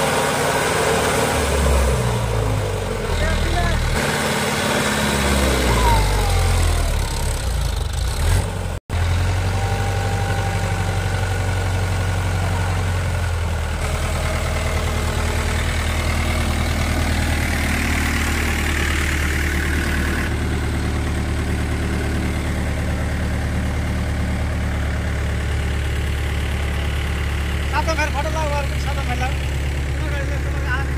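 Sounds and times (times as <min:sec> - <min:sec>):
tractor diesel engine running: 0:00.0 - 0:30.9.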